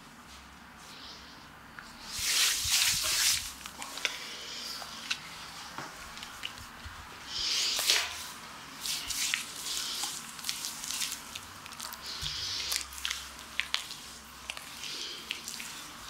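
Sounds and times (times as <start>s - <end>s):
hands squishing lather on skin: 8.8s - 16.0s.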